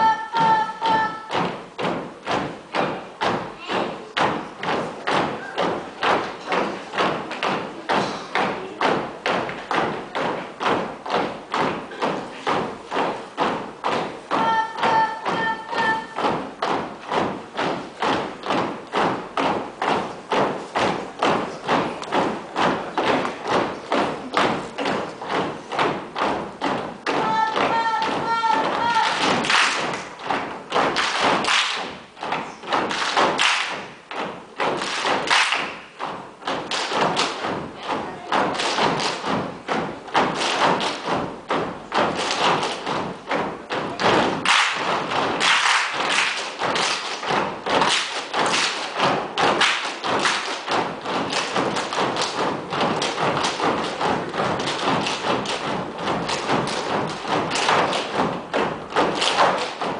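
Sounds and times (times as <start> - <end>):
boots stamping and slapping: 16.2 - 37.8.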